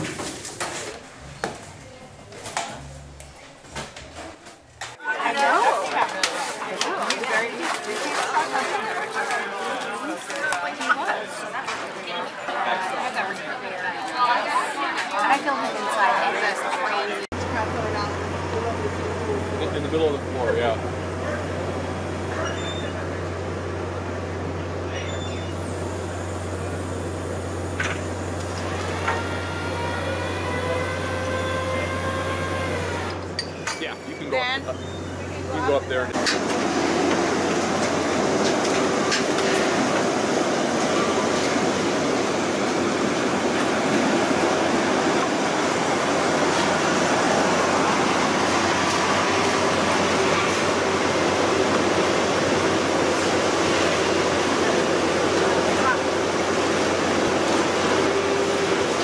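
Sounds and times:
machinery droning: 17.3s - 59.0s.

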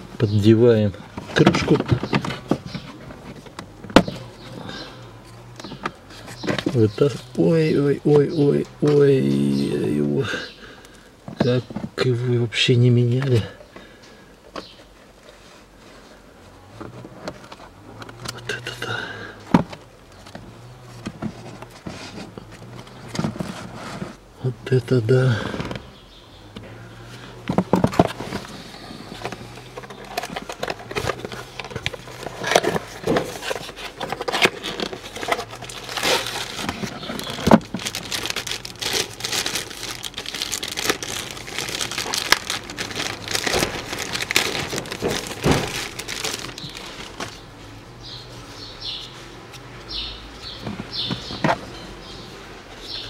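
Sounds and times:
crinkling and rustling wrapping: 0.0s - 7.6s, 27.0s - 49.7s.

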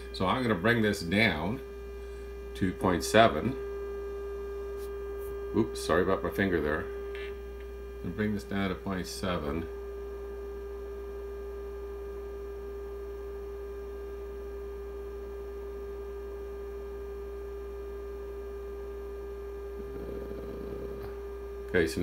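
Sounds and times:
low mains hum: 0.0s - 22.0s
sine-wave test tone: 0.0s - 22.0s.

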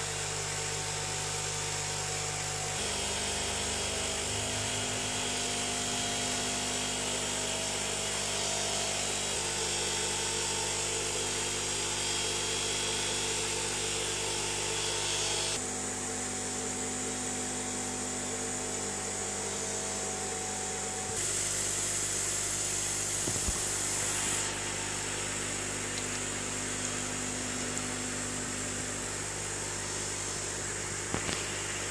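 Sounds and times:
aquarium equipment humming: 0.0s - 31.9s
air pumps running: 1.6s - 15.7s, 18.3s - 31.9s.

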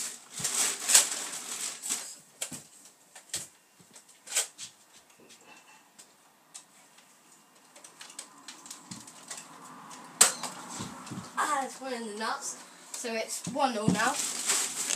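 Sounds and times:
handling rustle: 13.5s - 14.9s.

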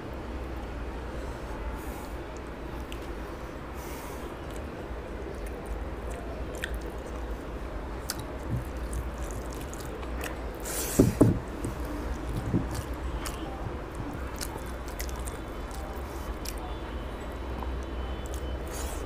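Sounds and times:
wet chewing: 5.3s - 7.3s, 8.0s - 10.9s, 11.5s - 16.7s
low thumps: 11.0s - 12.8s.

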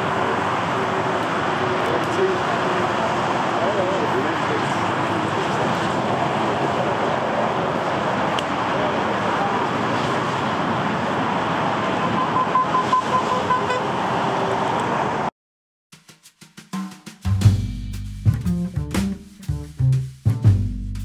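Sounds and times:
jet engines rumbling: 0.0s - 15.3s
high beeping toots: 12.0s - 13.9s.

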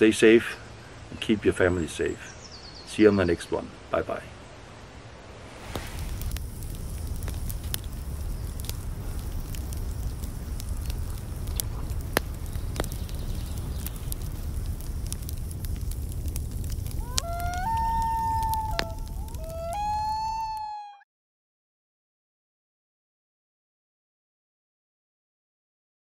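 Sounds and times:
fire crackles and pops: 5.3s - 20.8s
wood fire rumbling: 5.4s - 20.6s.

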